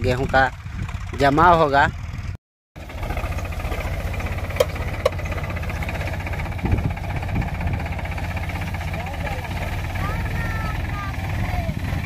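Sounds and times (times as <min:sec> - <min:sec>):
diesel tractor engine running: 0:00.0 - 0:12.0.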